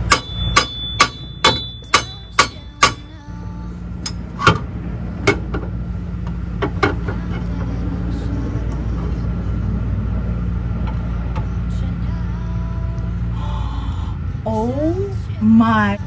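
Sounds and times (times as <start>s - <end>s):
metal-on-metal strikes ringing: 0.0s - 3.1s.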